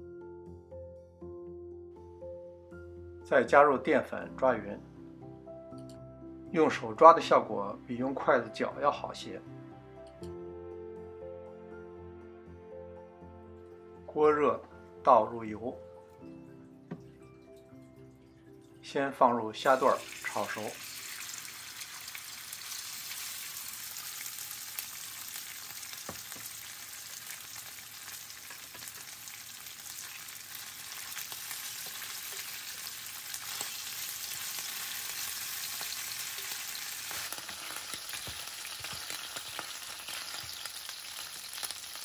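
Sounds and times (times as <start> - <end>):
shrimp sizzling in hot oil: 19.6 - 42.0
utensils tapping a pan: 33.4 - 42.0.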